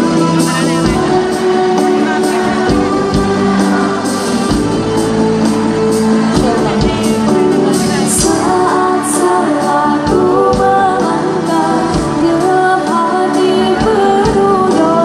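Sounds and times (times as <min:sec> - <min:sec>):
drums: 0:00.0 - 0:15.0
keyboard: 0:00.0 - 0:15.0
woman singing into a microphone: 0:06.3 - 0:15.0.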